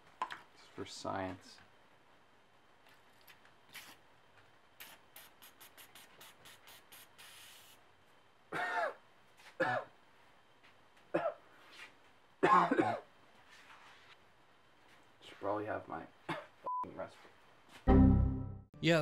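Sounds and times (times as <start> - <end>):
aerosol can spraying: 4.8 - 7.8
man coughing hard: 8.5 - 9.0, 9.6 - 9.9, 11.1 - 11.4, 12.4 - 13.1, 16.3 - 16.6.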